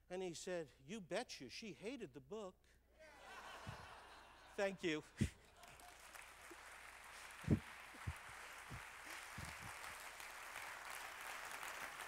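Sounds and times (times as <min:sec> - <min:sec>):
audience applauding: 0:05.6 - 0:12.0.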